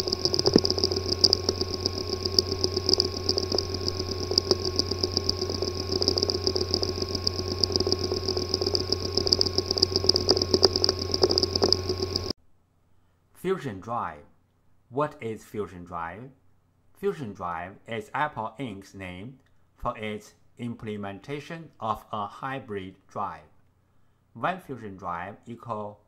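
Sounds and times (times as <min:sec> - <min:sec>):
hard disk buzzing and whining: 0:00.0 - 0:12.4
hard disk irregular ticking: 0:00.0 - 0:12.4.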